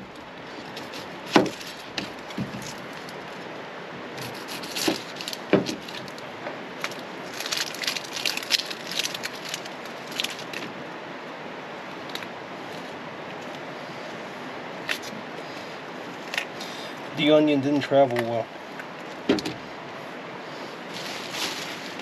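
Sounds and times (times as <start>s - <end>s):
onion skin crackling as peeled: 6.8s - 10.6s.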